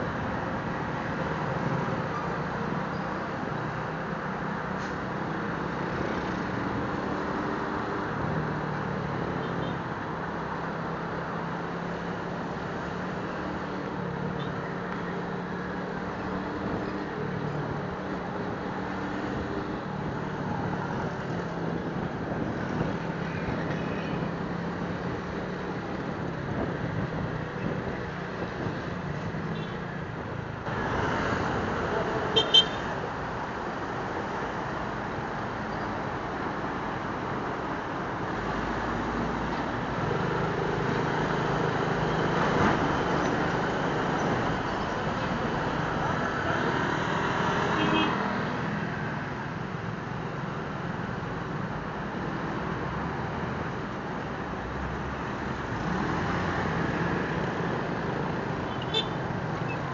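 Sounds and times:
road noise rushing: 0:00.0 - 0:59.9.

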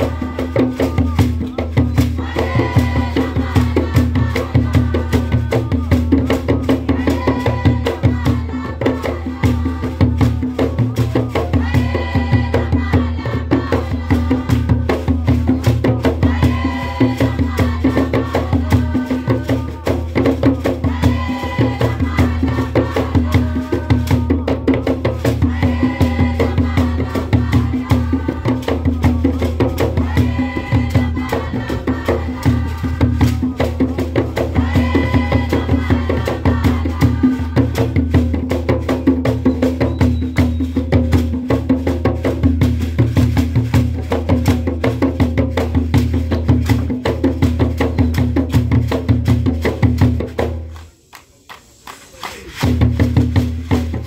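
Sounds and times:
group of voices singing: 0:00.0 - 0:42.5
rattling percussion: 0:00.0 - 0:50.9, 0:51.5 - 0:54.0
hand-clapping: 0:50.4 - 0:53.5.

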